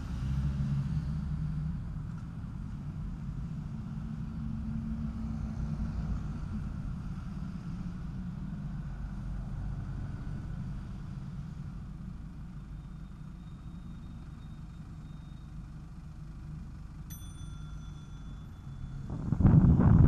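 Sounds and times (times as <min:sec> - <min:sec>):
street traffic rumble: 0:00.0 - 0:20.0
bicycle bell ring: 0:17.1 - 0:19.2
wind buffeting microphone: 0:18.9 - 0:20.0.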